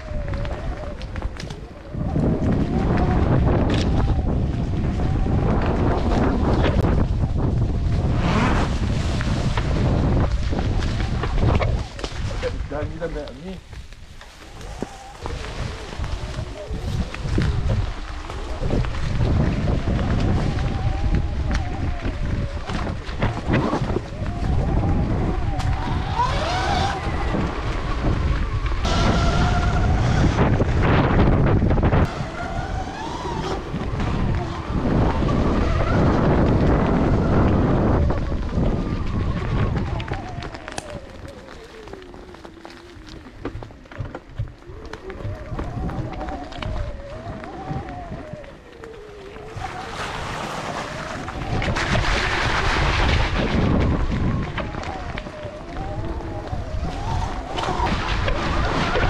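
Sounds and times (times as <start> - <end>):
wind buffeting microphone: 0.0 - 59.0
electric motor whine: 24.6 - 52.0.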